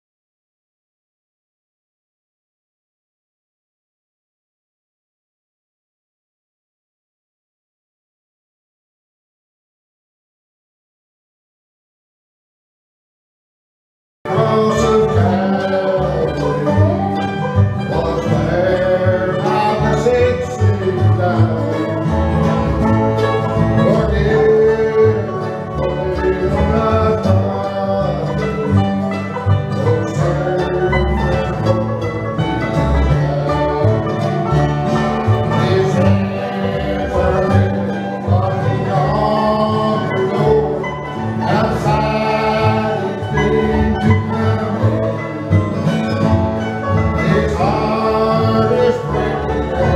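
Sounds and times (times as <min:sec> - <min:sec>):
people singing: 0:14.3 - 0:46.3, 0:46.9 - 0:49.9
acoustic guitar: 0:14.3 - 0:49.9
mandolin: 0:14.3 - 0:49.9
upright bass: 0:14.3 - 0:49.9.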